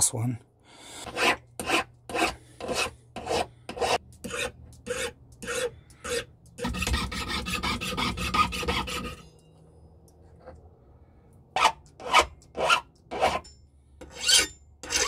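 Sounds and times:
file rasping on metal wire: 1.0s - 9.3s, 11.6s - 15.0s
saw cutting through wire: 1.0s - 9.3s.

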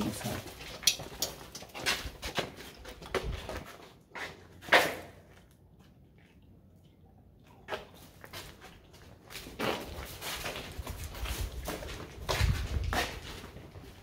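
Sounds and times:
knocks and scuffs: 7.7s - 14.0s.

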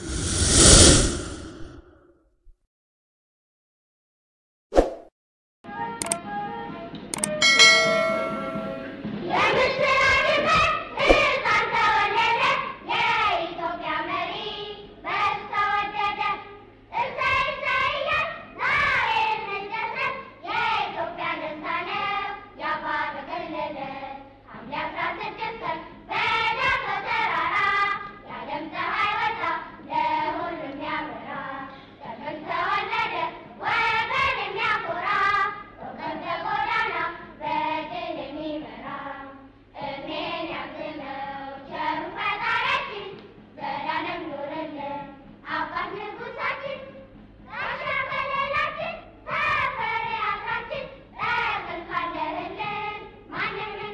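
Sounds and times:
children singing together: 18.7s - 53.9s.

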